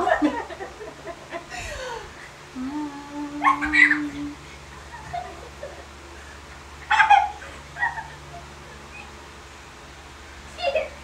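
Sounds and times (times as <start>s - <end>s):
person humming a held note: 2.6s - 4.4s.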